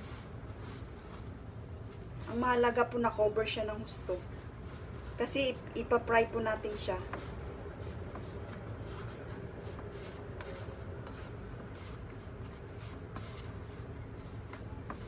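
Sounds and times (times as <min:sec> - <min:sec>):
hands rustling in powder: 0:06.5 - 0:15.0.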